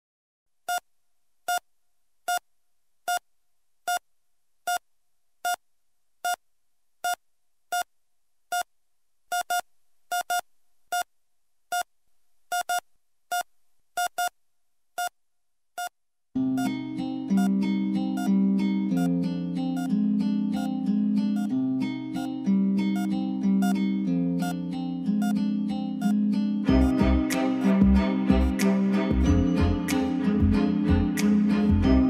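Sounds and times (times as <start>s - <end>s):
short electronic beeps: 9.3s - 11.1s, 12.5s - 14.3s
acoustic guitar music: 16.4s - 32.0s.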